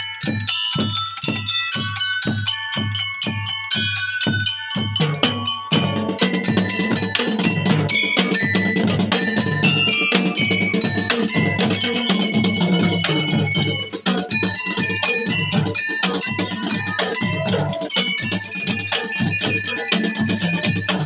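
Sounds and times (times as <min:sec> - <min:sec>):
bell lyres ringing melody: 0:00.0 - 0:21.0
bass drum beat: 0:05.2 - 0:21.0.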